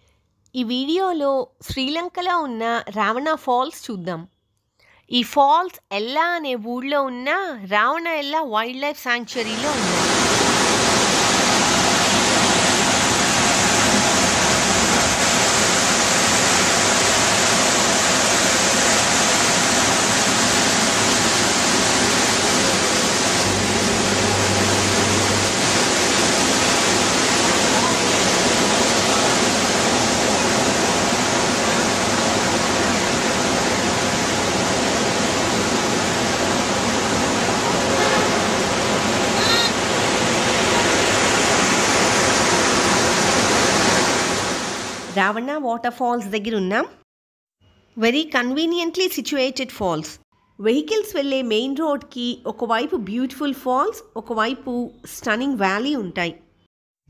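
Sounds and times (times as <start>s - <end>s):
waterfall rushing: 9.4s - 45.1s.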